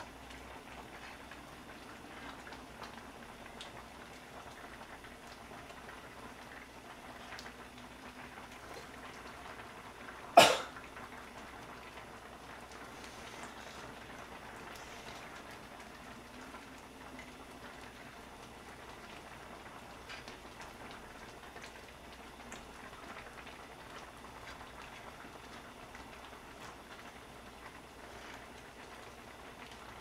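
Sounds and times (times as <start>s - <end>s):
soup simmering bubbling: 0.0s - 30.0s
person coughing: 10.4s - 10.8s.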